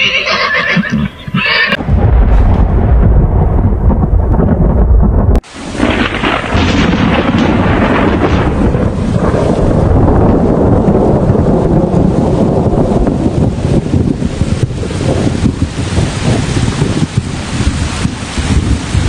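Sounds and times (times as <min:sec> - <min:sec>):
horse neighing: 0:00.0 - 0:01.8
loud low thunder rumble: 0:01.8 - 0:19.0
heavy rain hiss: 0:05.4 - 0:19.0.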